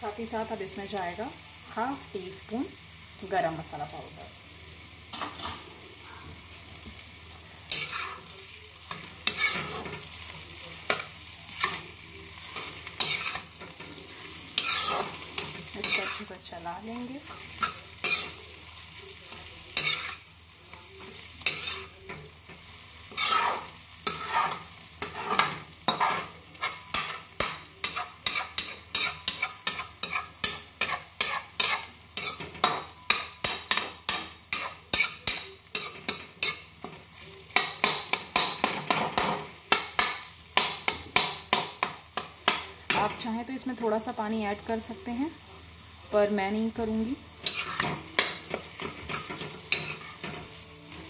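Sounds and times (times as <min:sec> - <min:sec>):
light frying sizzle: 0:00.0 - 0:51.0
metal spatula scraping a pan: 0:07.7 - 0:08.3, 0:08.9 - 0:10.2, 0:10.8 - 0:18.5, 0:19.4 - 0:20.3, 0:21.0 - 0:37.0, 0:47.4 - 0:51.0.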